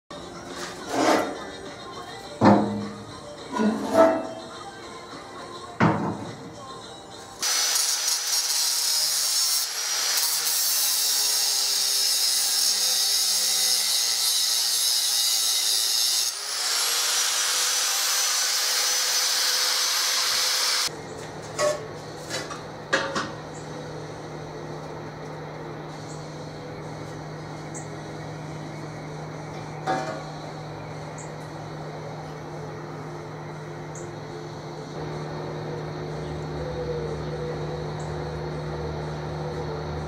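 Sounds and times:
power tool grinding metal: 7.4 - 20.9.

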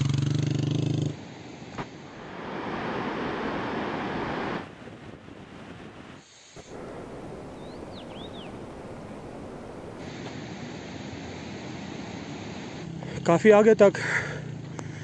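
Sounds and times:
steady rushing outdoor noise: 0.0 - 15.0
bird chirping: 7.3 - 9.2.

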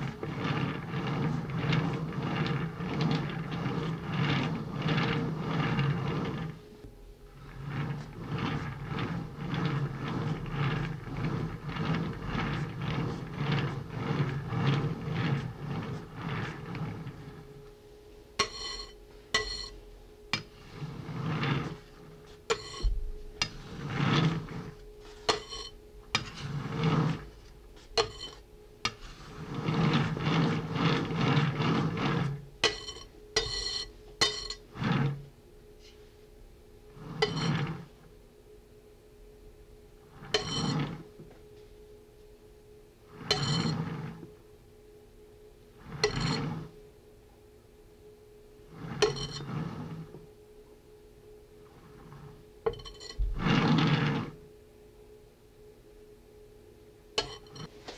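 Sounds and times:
spatula rubbing frosting: 0.0 - 36.1, 37.0 - 38.0, 40.1 - 41.1, 43.1 - 44.2, 48.7 - 50.2, 51.8 - 54.4.

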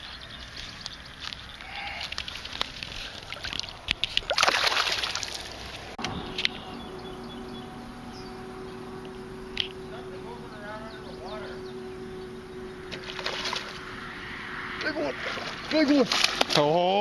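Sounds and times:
faint steady hum: 1.6 - 15.6
water drips: 2.0 - 5.9
fish splashing into water: 2.2 - 6.0, 12.9 - 13.9, 15.2 - 16.6.

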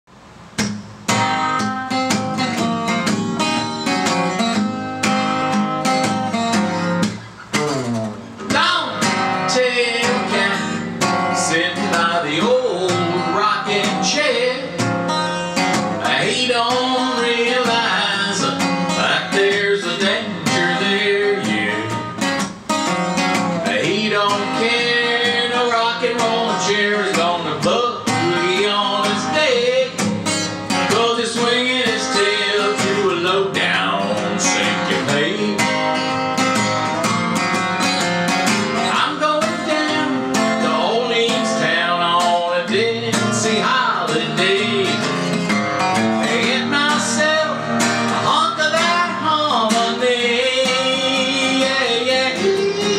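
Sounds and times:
acoustic guitar strumming: 0.1 - 52.9
man singing: 8.4 - 14.9, 15.6 - 22.3, 23.4 - 36.0, 38.8 - 52.9.

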